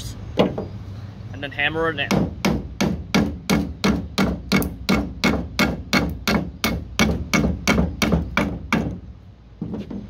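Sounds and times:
hammer striking nail: 0:02.1 - 0:09.0.

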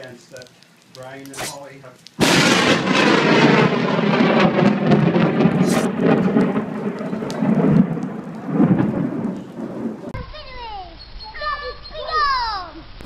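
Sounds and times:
rain falling: 0:00.0 - 0:10.3
sharp crackles: 0:00.0 - 0:11.0
thunder rolling and rumbling: 0:02.2 - 0:10.2.

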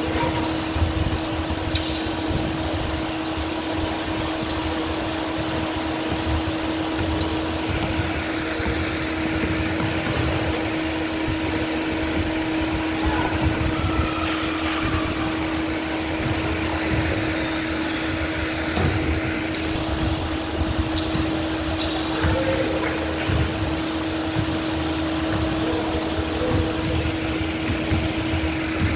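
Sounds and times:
electric fan motor hum: 0:00.0 - 0:28.9
sneaker squeaks and knocks: 0:00.1 - 0:02.2, 0:03.1 - 0:25.7, 0:26.4 - 0:28.9.

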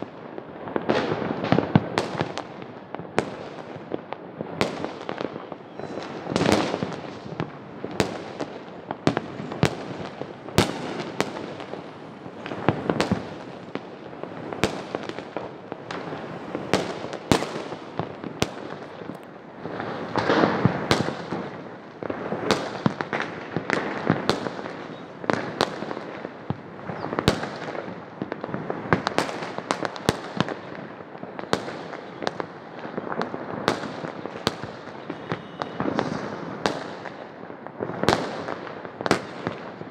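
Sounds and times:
distant fireworks bangs and crackling: 0:00.0 - 0:39.9
firecracker sharp bangs: 0:04.5 - 0:19.0, 0:31.4 - 0:39.9.

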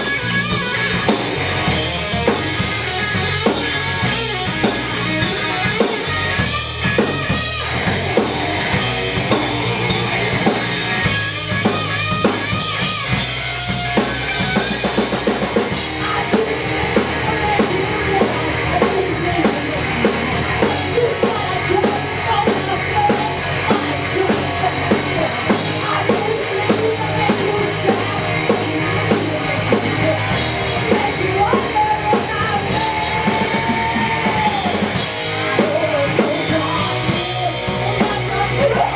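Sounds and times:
bass guitar: 0:00.0 - 0:38.9
bending lead guitar melody: 0:00.0 - 0:38.9
drum kit beat: 0:00.0 - 0:38.9
electric guitar: 0:00.0 - 0:38.9.

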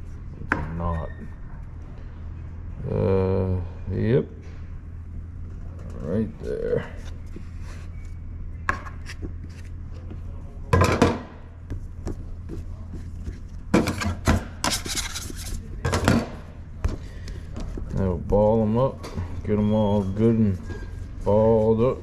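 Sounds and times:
steady low hum: 0:00.0 - 0:22.0
dough scraping on work surface: 0:12.3 - 0:15.8.

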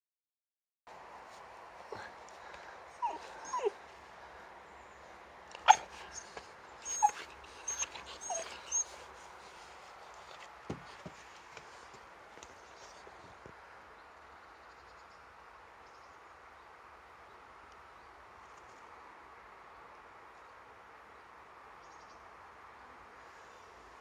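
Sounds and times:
puppy yipping and barking: 0:03.0 - 0:03.8, 0:05.6 - 0:09.0.

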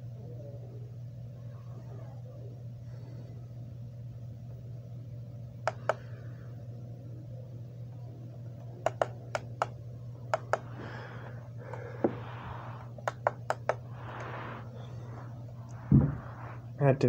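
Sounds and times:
steady low hum: 0:00.0 - 0:17.0
remote control buttons clicking: 0:08.6 - 0:10.7, 0:13.0 - 0:13.8.

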